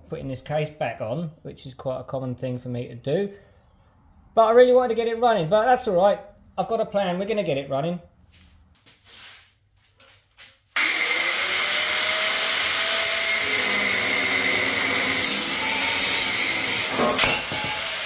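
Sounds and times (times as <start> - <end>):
angle grinder cutting metal: 10.8 - 18.0.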